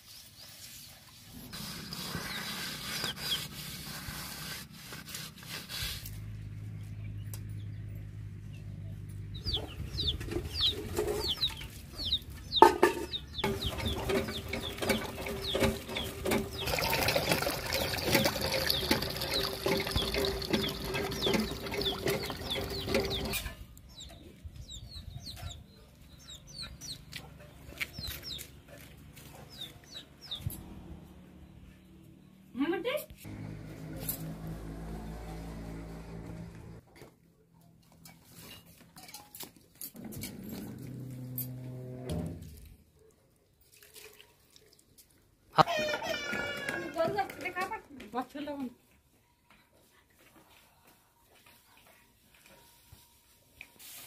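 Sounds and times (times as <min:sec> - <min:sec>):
pot being scrubbed: 0:00.7 - 0:06.3, 0:13.5 - 0:23.4
chickens clucking: 0:09.3 - 0:30.6
hand pump working: 0:13.4 - 0:23.5
water splashing: 0:14.6 - 0:23.3.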